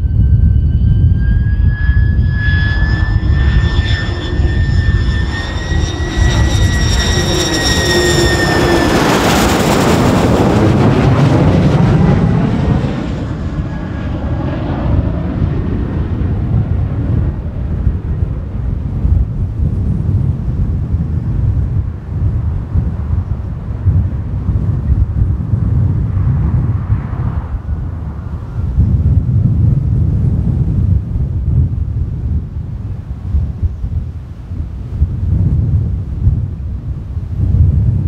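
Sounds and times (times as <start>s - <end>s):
jet noise rushing overhead: 0.0s - 36.2s
jet engine whine: 0.0s - 38.0s
wind buffeting microphone: 0.0s - 38.0s.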